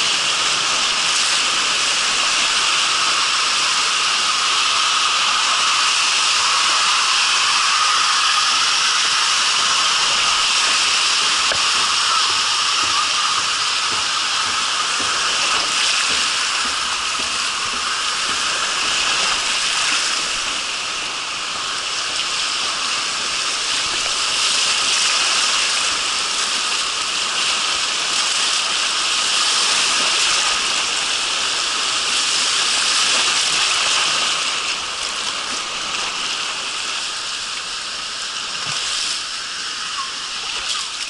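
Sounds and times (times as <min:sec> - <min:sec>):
whitewater rushing: 0:00.0 - 0:41.0.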